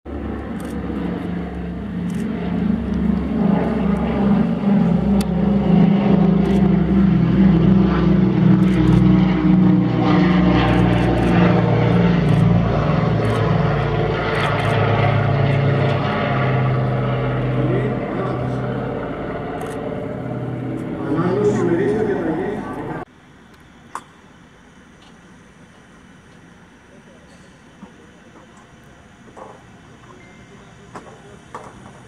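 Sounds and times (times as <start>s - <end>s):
propeller plane flying past: 0.1s - 23.1s.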